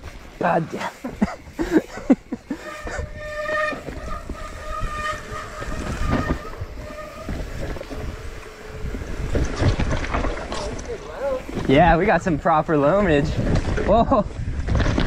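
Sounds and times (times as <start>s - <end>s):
tyres rumbling on wet dirt: 0.0s - 15.0s
bike disc brakes squealing: 0.8s - 11.7s.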